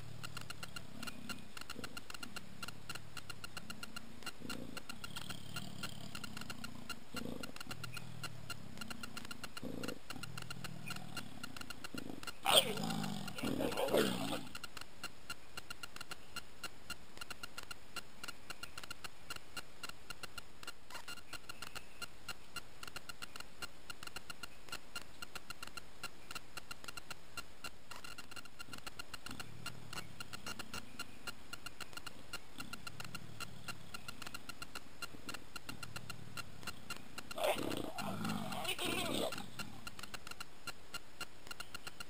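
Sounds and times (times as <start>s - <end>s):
leopard growls: 0.0s - 3.0s, 3.6s - 14.6s, 35.1s - 39.9s
insects trilling: 0.0s - 24.6s, 27.9s - 40.8s.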